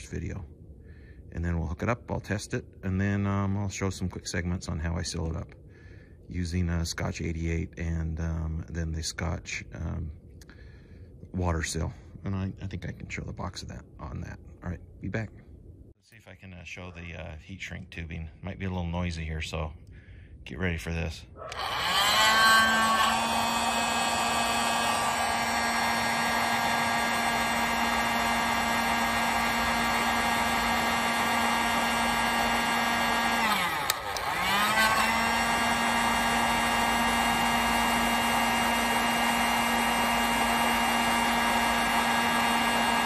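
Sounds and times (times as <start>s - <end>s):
heat gun fan whirring: 21.0s - 43.0s.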